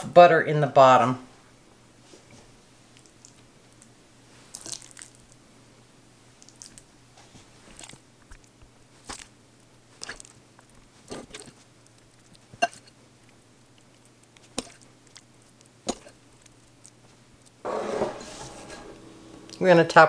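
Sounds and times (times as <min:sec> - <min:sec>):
soft food squishes: 0:02.0 - 0:05.6, 0:06.2 - 0:17.6.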